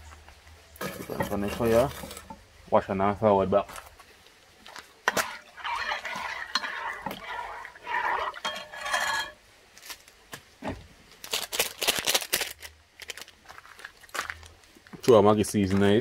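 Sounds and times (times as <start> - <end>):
metal utensil scraping pot: 0.8 - 2.4, 5.1 - 9.4.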